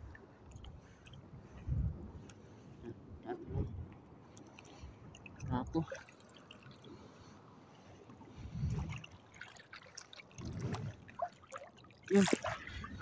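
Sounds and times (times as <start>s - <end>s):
seawater lapping and sloshing: 0.0s - 2.8s, 3.6s - 13.0s.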